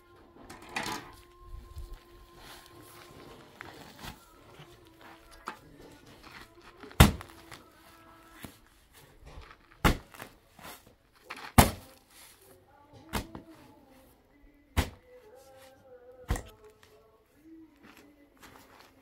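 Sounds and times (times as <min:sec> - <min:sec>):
bag and shovel scraping: 0:01.1 - 0:12.5
shovel thudding into bag: 0:06.8 - 0:07.6, 0:09.7 - 0:12.0, 0:14.8 - 0:15.0, 0:16.3 - 0:16.6.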